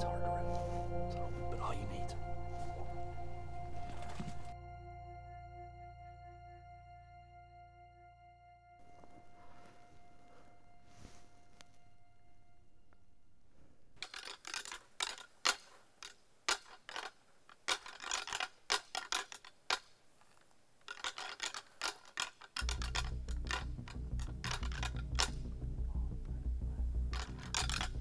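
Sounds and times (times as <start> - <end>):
low drone: 0.0 - 12.9, 22.6 - 28.0
antlers clacking together: 14.0 - 26.2, 27.0 - 28.0.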